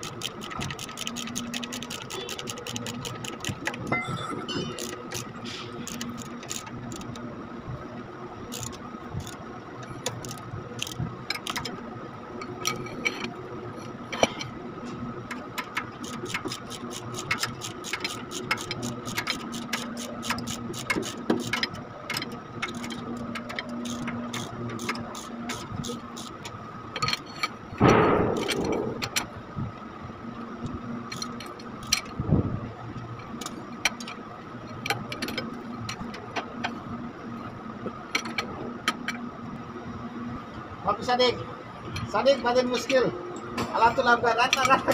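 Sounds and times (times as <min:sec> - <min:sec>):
ratchet wrench clicking: 0:00.0 - 0:07.2, 0:08.5 - 0:11.8, 0:15.3 - 0:27.6, 0:28.3 - 0:29.3, 0:31.1 - 0:32.2
background hum: 0:00.0 - 0:44.9.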